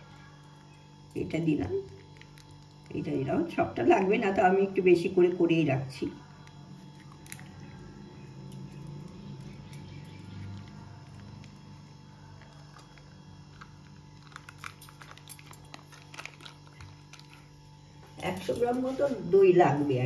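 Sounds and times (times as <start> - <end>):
steady low hum: 0.0 - 20.0
squeezing curd from plastic packet: 1.8 - 3.3, 6.2 - 17.9
plastic packet crinkling clicks: 12.4 - 17.5.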